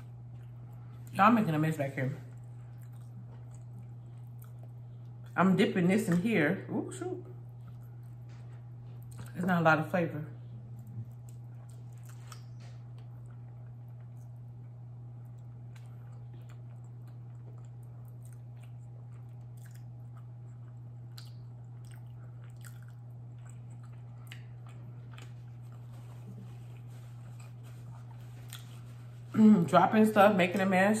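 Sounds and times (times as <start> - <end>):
person chewing food: 0.0 - 1.1, 2.3 - 5.4, 7.4 - 9.4, 10.7 - 29.3
steady low hum: 0.0 - 31.0.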